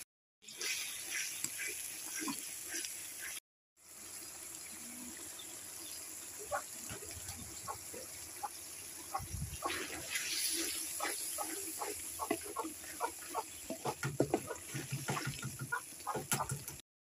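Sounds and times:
thick sauce bubbling and sizzling: 0.4s - 16.2s
chickens clucking: 6.5s - 10.1s, 11.0s - 16.7s
wooden spatula stirring in pan: 9.6s - 16.5s.

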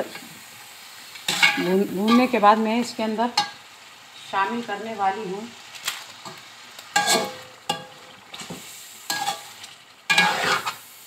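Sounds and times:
low frying sizzle: 0.0s - 11.0s
metal spoon scraping a pot: 7.0s - 7.9s, 10.1s - 10.8s.

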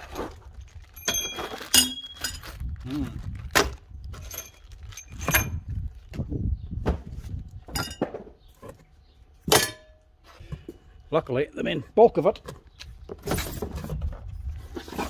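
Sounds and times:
plastic bag rustling: 0.0s - 6.1s
bolts clinking: 1.0s - 2.5s, 3.6s - 5.7s, 7.6s - 10.1s.

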